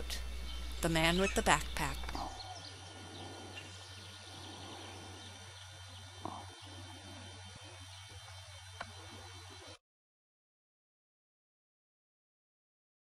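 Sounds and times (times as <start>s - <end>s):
faint bird chirps: 0.0s - 9.8s
low steady hum: 0.0s - 9.8s.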